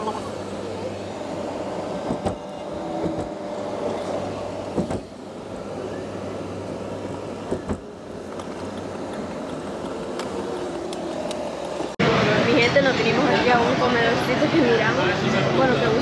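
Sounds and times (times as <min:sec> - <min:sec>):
vehicle running hum: 0:00.0 - 0:12.1
sharp knocks and bumps: 0:04.7 - 0:05.2.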